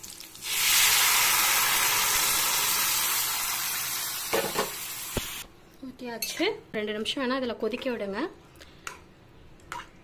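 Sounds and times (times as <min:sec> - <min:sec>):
curry sizzling in hot oil: 0:00.0 - 0:05.4.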